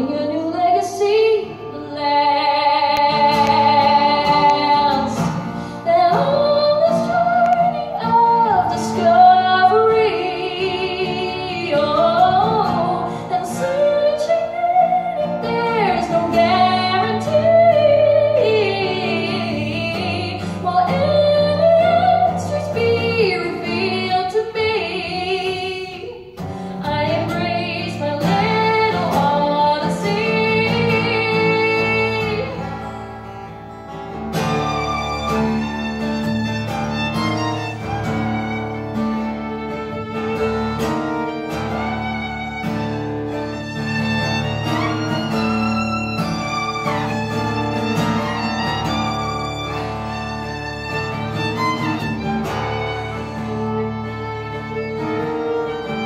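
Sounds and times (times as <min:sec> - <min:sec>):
woman singing: 0:00.0 - 0:32.9
acoustic guitar: 0:00.0 - 0:56.0
violin: 0:00.0 - 0:56.0.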